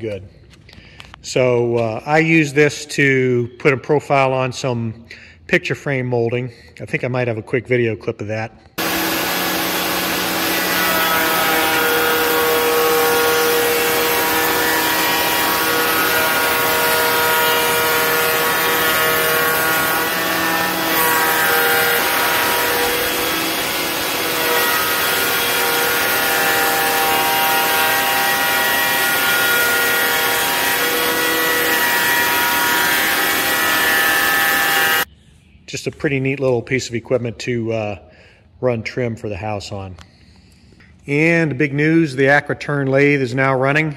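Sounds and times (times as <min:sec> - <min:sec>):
spindle shaper cutting wood: 0:08.8 - 0:35.1.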